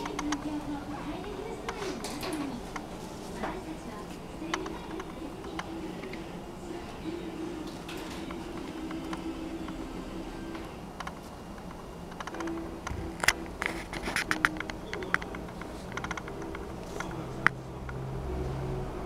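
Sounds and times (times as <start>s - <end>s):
sharp clicks and rustles: 10.6s - 18.0s.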